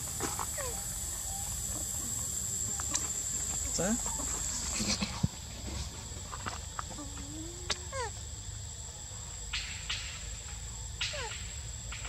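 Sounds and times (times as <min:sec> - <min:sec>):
high-pitched insect drone: 0:00.0 - 0:12.0
soft rustles: 0:02.9 - 0:07.0.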